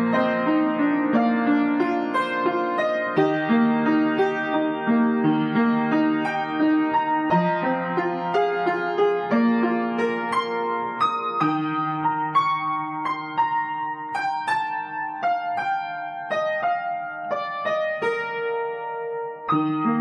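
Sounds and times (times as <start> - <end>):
slow gentle piano piece: 0.0 - 20.0.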